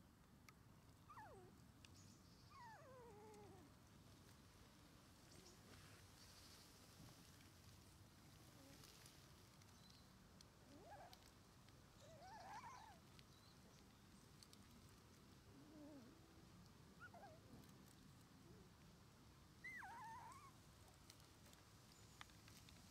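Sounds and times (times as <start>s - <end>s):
puppy whimpering: 1.1s - 1.5s, 12.0s - 13.0s, 17.0s - 17.4s, 19.6s - 20.6s.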